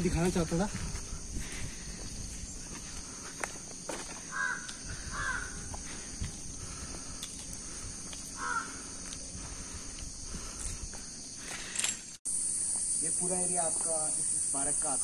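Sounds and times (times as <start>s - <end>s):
insects droning: 0.0s - 15.0s
crow cawing: 4.2s - 9.1s.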